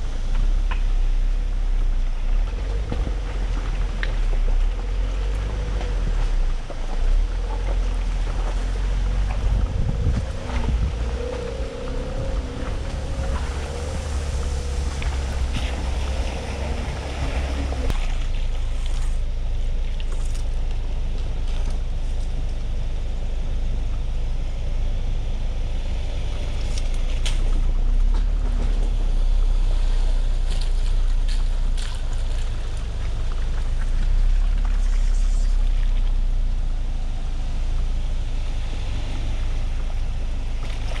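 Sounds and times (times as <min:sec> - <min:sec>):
wind noise on microphone: 0:00.0 - 0:19.3
truck engine rumble: 0:00.0 - 0:41.0.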